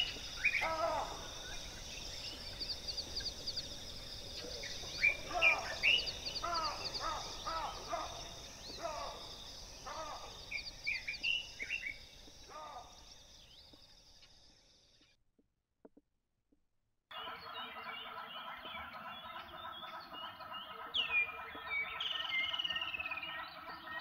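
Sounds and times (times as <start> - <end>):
high-pitched insect trill: 0.0 - 14.9
birds calling: 0.0 - 15.0, 17.1 - 24.0.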